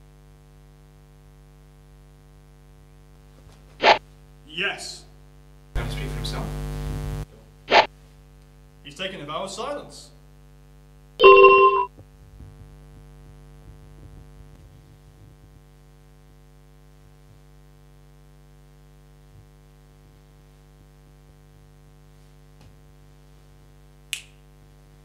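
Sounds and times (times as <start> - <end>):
bright chime: 11.2 - 11.9
electrical hum: 11.2 - 17.6.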